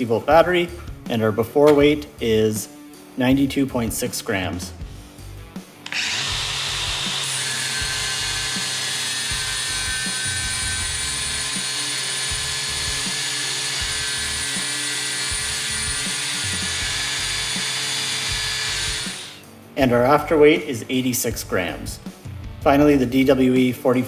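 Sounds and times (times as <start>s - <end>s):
angle grinder grinding steel: 5.8s - 19.4s.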